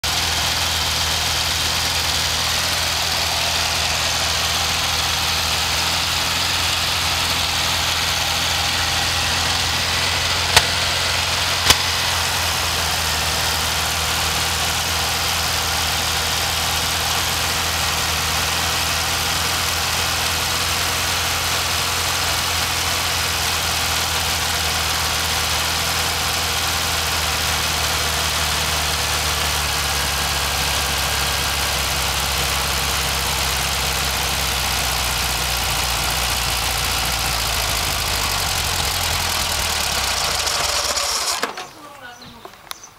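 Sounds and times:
car engine idling: 0.0s - 42.9s
sharp clicks: 11.6s - 11.9s.

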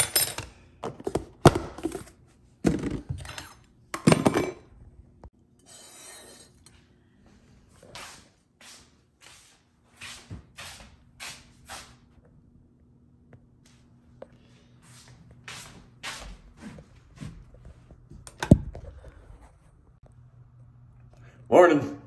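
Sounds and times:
footsteps on hard floor: 15.0s - 18.8s.

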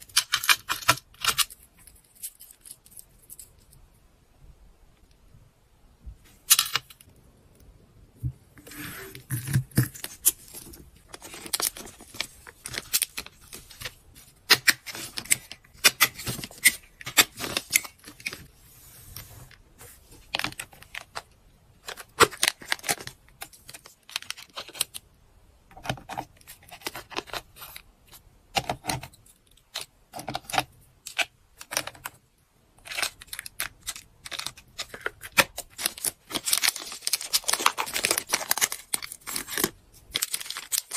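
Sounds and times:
plastic packaging rustling: 8.6s - 25.0s, 32.8s - 40.9s.

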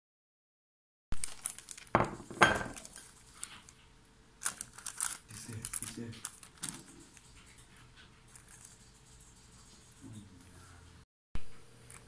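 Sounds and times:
plastic wrap crinkling: 1.2s - 3.8s, 4.4s - 7.6s.

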